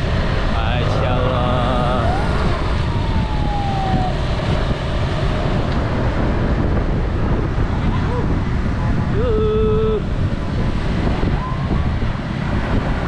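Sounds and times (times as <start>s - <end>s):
downward gliding tone: 0.0s - 6.0s
motor scooter traffic: 0.0s - 13.0s
wind rumble on microphone: 0.0s - 13.0s.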